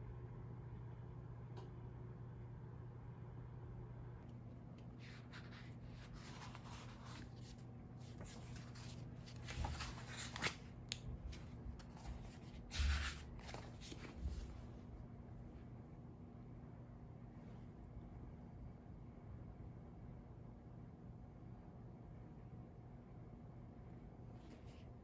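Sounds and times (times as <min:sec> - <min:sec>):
soft handling noises: 0:04.2 - 0:15.7, 0:24.3 - 0:25.0
book pages rustling: 0:04.7 - 0:14.8.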